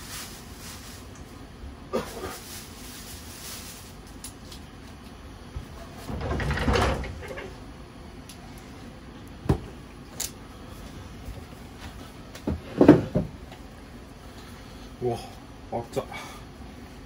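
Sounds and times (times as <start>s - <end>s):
knocks and clunks: 5.6s - 7.6s.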